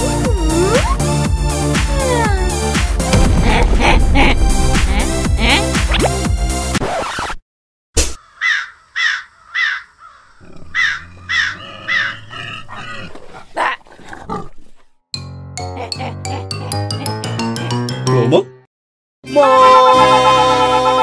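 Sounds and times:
music: 0.0 - 6.8, 15.1 - 21.0
sharp hits: 3.0 - 6.3
crow cawing: 8.2 - 12.2.

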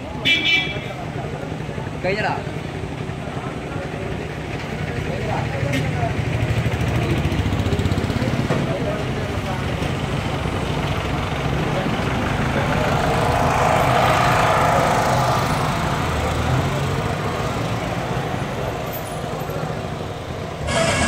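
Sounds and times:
vehicle engine idling: 0.0 - 13.9.

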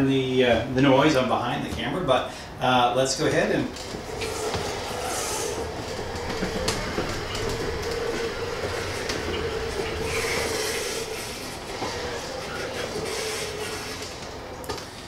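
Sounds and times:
wheels rolling on wooden floor: 3.2 - 15.0
drive motor whine: 3.7 - 15.0.

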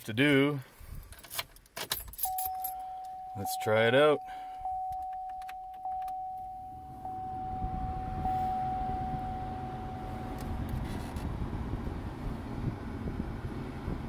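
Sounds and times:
electronic chime tone: 2.2 - 10.3
faint steady fan hum: 2.3 - 13.9
fan blowing air: 6.7 - 14.0.

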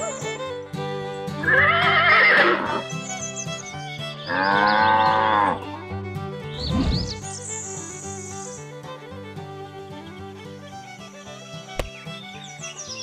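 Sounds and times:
background music: 0.0 - 13.0
livestock calls: 1.4 - 2.8, 4.2 - 5.7.

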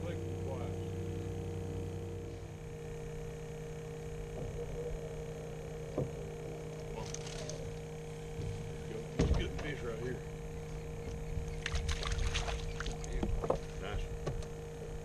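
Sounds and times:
fainter higher tone: 0.0 - 9.0
steady low hum: 0.0 - 15.0
faint knocks: 8.3 - 9.8.

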